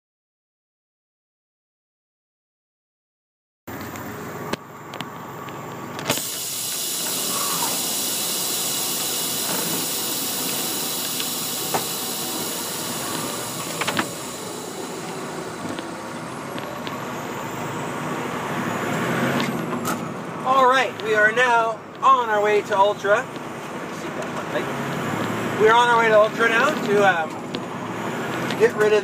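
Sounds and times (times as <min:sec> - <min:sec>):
truck cab hiss: 0:06.0 - 0:19.9.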